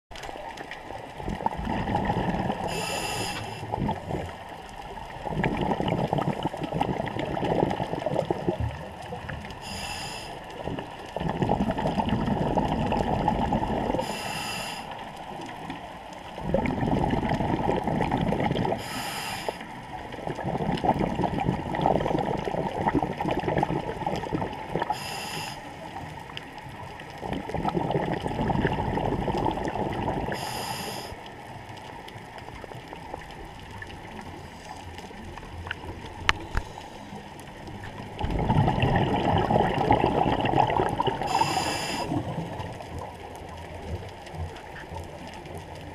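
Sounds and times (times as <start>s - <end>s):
exhale bubbling underwater: 0.2s - 45.9s
regulator inhale hiss: 2.6s - 3.8s, 9.5s - 10.7s, 13.9s - 15.1s, 18.8s - 19.8s, 24.9s - 26.0s, 30.3s - 31.3s, 36.4s - 37.2s, 41.2s - 42.5s.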